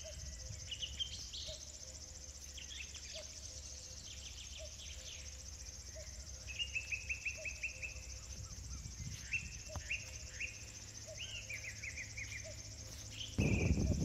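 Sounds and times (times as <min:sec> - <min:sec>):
birds chirping: 0:00.0 - 0:14.0
high insect buzz: 0:00.0 - 0:14.0
loud low rumble: 0:13.4 - 0:14.0.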